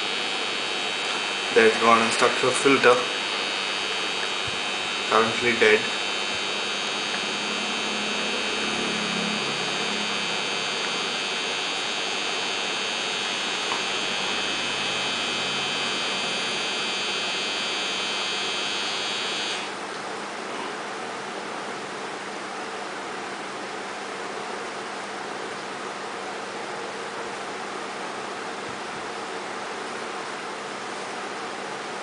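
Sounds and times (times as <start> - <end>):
high-pitched whine: 0.0 - 19.9
aquarium filter humming: 0.0 - 22.6.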